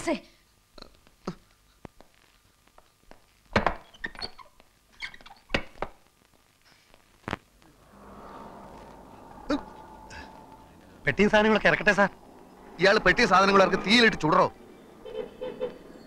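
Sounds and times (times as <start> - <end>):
low background hum: 6.0 - 16.0.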